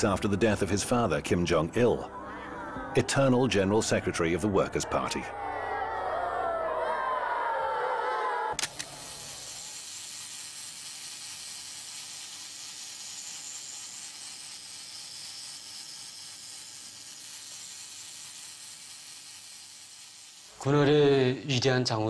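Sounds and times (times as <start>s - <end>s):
steady hiss: 8.6s - 21.7s.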